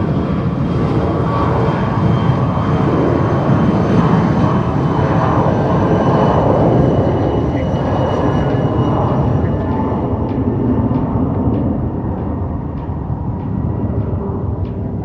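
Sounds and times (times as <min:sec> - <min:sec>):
aircraft engine: 0:00.0 - 0:15.0
wind rumbling on microphone: 0:00.0 - 0:15.0
faint high whine: 0:04.6 - 0:15.0.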